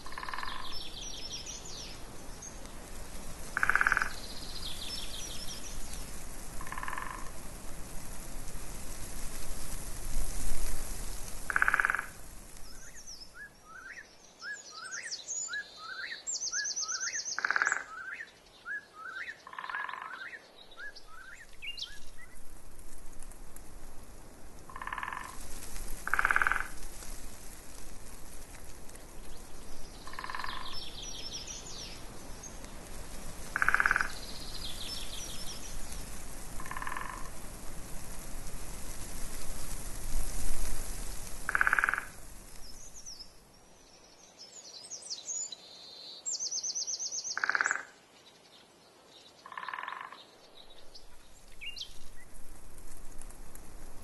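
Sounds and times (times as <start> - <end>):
frogs croaking: 0.0 - 0.9, 3.5 - 4.6, 6.6 - 7.4, 11.5 - 12.2, 17.0 - 18.3, 19.1 - 20.4, 24.7 - 25.4, 26.0 - 26.8, 30.0 - 31.2, 33.5 - 34.5, 36.6 - 37.4, 41.5 - 42.2, 47.3 - 48.0, 49.4 - 50.3
birds singing and chirping: 0.2 - 2.6, 29.2 - 32.7, 33.6 - 35.9.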